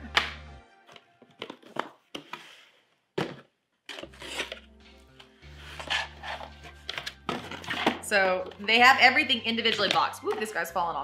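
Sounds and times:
cardboard crinkling and scraping: 5.6 - 8.5.

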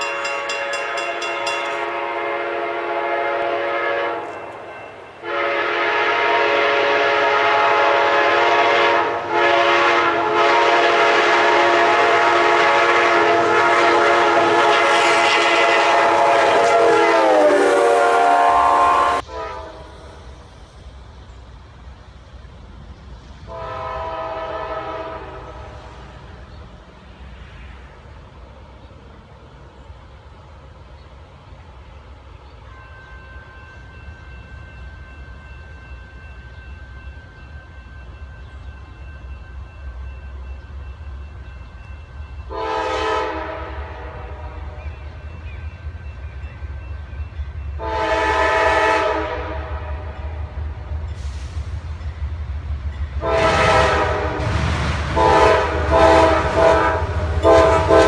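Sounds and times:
locomotive air horn blasts: 0.0 - 20.2, 23.5 - 26.2, 42.5 - 45.1, 47.8 - 51.6, 53.2 - 58.0
low rumble of passing train: 0.0 - 58.0.

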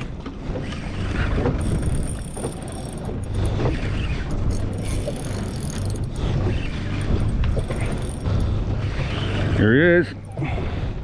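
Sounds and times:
water rumble around boat: 0.0 - 11.0
wind: 0.0 - 11.0
fishing reel being cranked: 1.6 - 9.6.

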